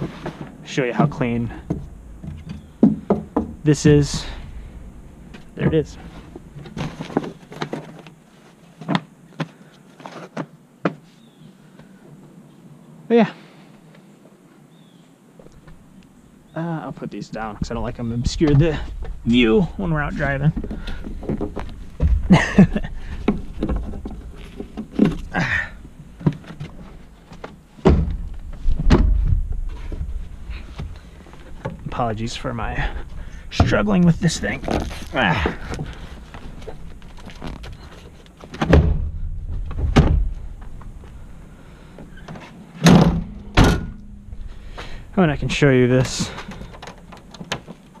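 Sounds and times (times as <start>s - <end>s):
sharp knocks and clicks of panels: 1.6s - 3.8s, 26.2s - 30.1s, 36.6s - 41.0s, 42.0s - 44.1s, 46.0s - 48.0s.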